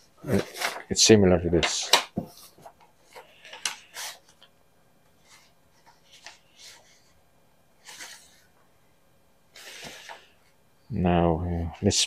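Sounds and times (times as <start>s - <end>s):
paper rustling: 0.0s - 1.0s, 1.6s - 4.5s, 5.2s - 7.1s, 7.8s - 8.5s.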